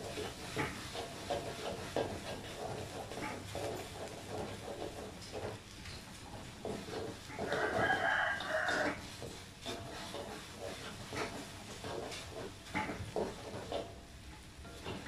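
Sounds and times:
metal spatula scraping: 0:00.0 - 0:15.0
okra sizzling in a wok: 0:00.0 - 0:15.0
rooster crowing: 0:07.4 - 0:09.0.

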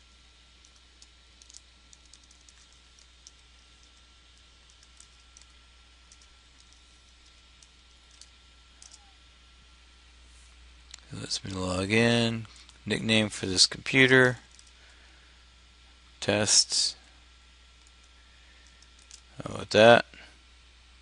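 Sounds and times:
low steady hum: 0:00.0 - 0:21.0
keyboard typing: 0:01.4 - 0:04.0, 0:06.1 - 0:09.0.

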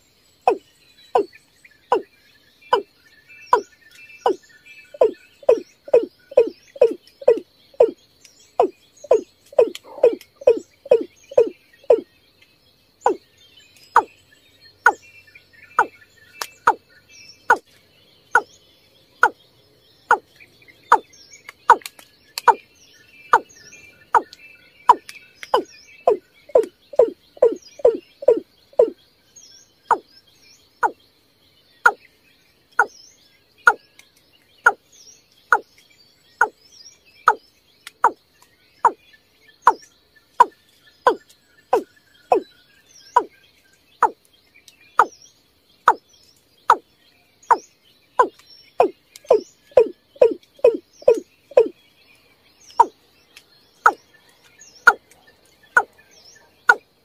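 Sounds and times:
bird calling with deep notes: 0:00.4 - 0:12.2, 0:13.0 - 0:17.7, 0:18.3 - 0:19.4, 0:20.0 - 0:29.0, 0:29.7 - 0:31.0, 0:32.8 - 0:33.0, 0:33.6 - 0:34.0, 0:34.6 - 0:36.6, 0:37.2 - 0:43.4, 0:44.0 - 0:44.2, 0:44.9 - 0:51.8, 0:52.6 - 0:53.0.

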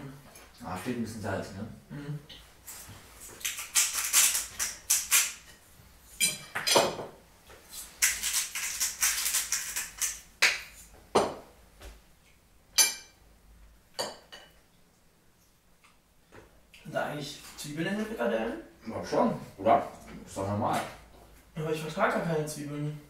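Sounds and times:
salt shaker rattling: 0:03.4 - 0:05.4, 0:07.7 - 0:10.3
plate and cutlery clinks: 0:06.2 - 0:07.0.

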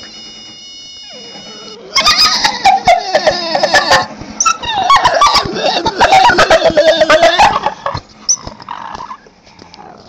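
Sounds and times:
dog whining in high squeals: 0:01.0 - 0:07.6.

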